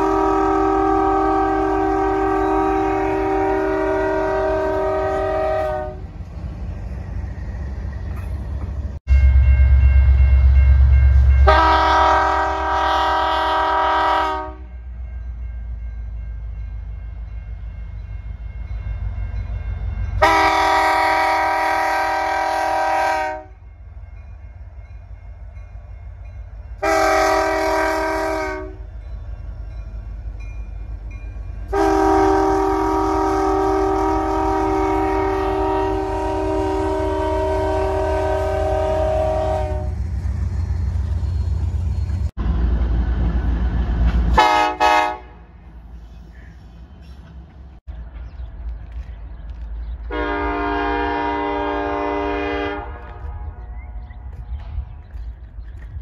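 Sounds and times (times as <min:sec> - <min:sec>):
locomotive air horn blasts: 0:00.0 - 0:06.1, 0:11.2 - 0:14.8, 0:20.2 - 0:23.6, 0:26.8 - 0:28.9, 0:31.7 - 0:40.1, 0:44.3 - 0:45.6, 0:50.1 - 0:53.9
diesel engine and wheels rumbling: 0:00.0 - 0:56.0.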